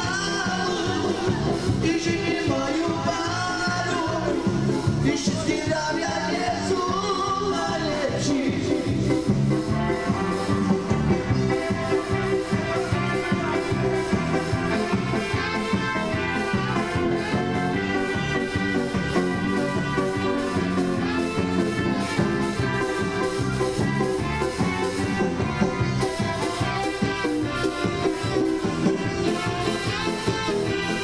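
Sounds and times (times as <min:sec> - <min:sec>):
electric guitar: 0:00.0 - 0:31.0
live band playing upbeat music: 0:00.0 - 0:31.0
electronic keyboard: 0:06.4 - 0:31.0.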